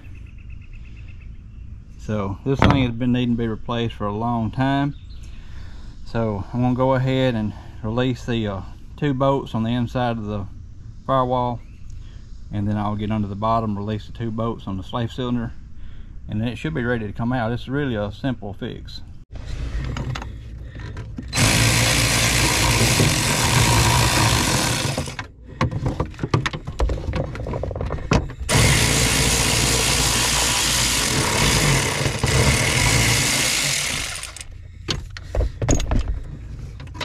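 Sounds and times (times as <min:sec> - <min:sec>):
clicks and rattles of loose nuts: 0:19.9 - 0:29.0, 0:29.6 - 0:37.0
electric ratchet spinning: 0:21.3 - 0:25.3, 0:28.5 - 0:34.5.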